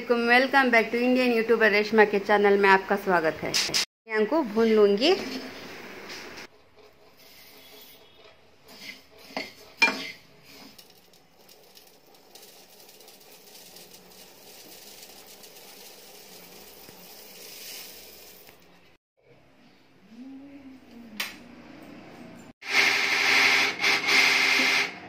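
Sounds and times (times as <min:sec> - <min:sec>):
seeds rustling in a pan: 0:10.4 - 0:19.0
seeds poured into steel pot: 0:10.7 - 0:18.8.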